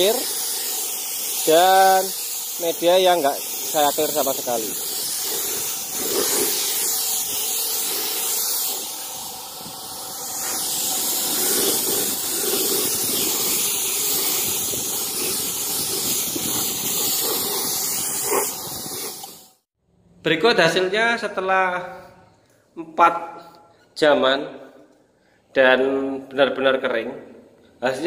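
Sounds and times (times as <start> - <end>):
paint spray gun hissing: 0.0 - 19.7.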